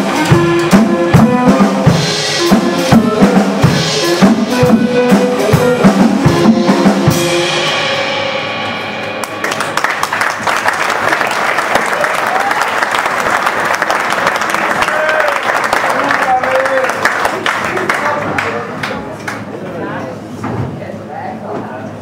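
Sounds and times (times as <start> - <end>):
live band with drums and horns: 0.0 - 17.5
audience applause: 9.2 - 19.5.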